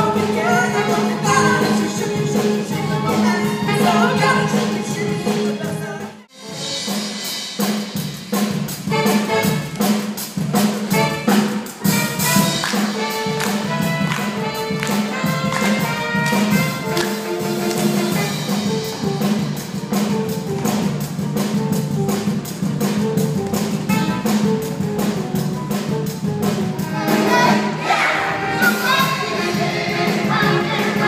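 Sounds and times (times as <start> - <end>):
driving drum beat: 0.0 - 31.0
held horn and saxophone notes: 8.8 - 9.9, 10.9 - 19.0, 23.8 - 24.6.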